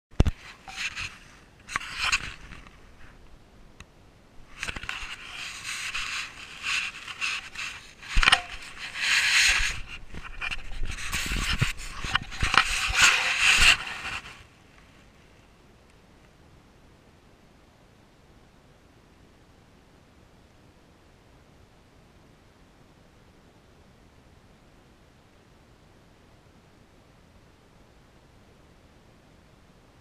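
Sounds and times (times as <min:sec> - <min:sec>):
rustling and scraping: 0:00.2 - 0:03.3, 0:04.4 - 0:15.5
faint hiss: 0:00.2 - 0:30.0.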